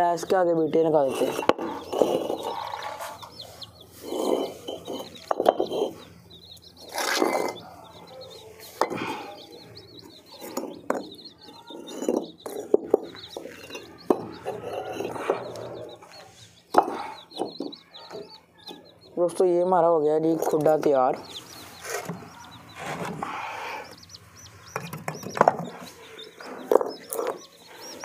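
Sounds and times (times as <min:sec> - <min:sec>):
birds chirping faintly: 0:00.0 - 0:28.0
bricks knocking and scraping: 0:04.0 - 0:06.0, 0:06.9 - 0:07.6, 0:10.4 - 0:15.6.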